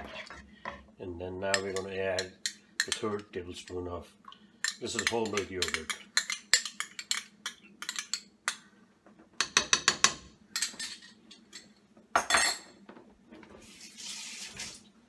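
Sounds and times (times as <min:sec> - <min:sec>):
wooden spoon scraping a pan: 0:00.0 - 0:00.9.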